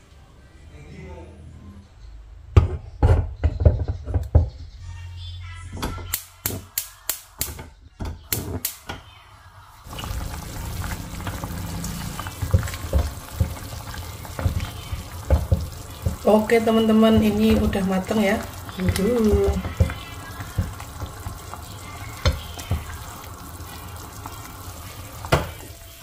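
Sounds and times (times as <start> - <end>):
gas stove igniter clicking: 8.3 - 8.9
soup simmering: 9.8 - 26.0
pot and spoon knocking: 12.4 - 21.1.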